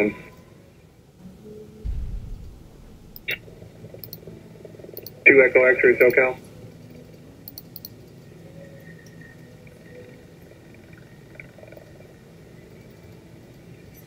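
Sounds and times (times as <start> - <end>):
low hum: 1.5 - 5.0
radio hiss: 5.2 - 6.4.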